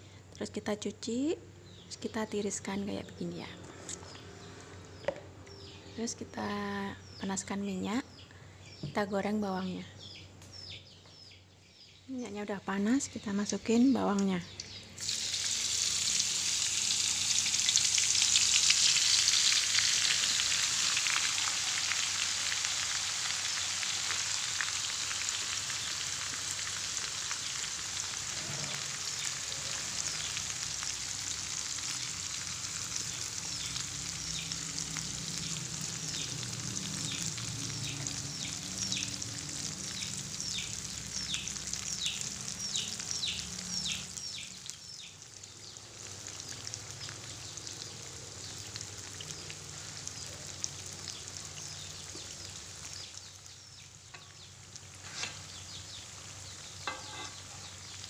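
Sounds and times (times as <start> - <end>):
shallots sizzling in hot oil: 12.7 - 58.0
oil crackles and pops: 14.2 - 58.0.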